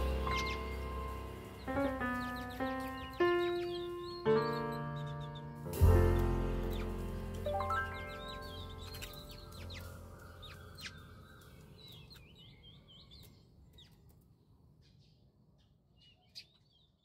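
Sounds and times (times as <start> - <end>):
gentle background music: 0.0 - 11.7
birds chirping: 0.0 - 17.0.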